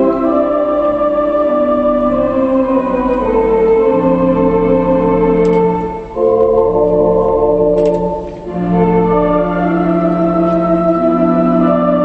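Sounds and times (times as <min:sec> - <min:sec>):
theatre organ playing chords: 0:00.0 - 0:12.0.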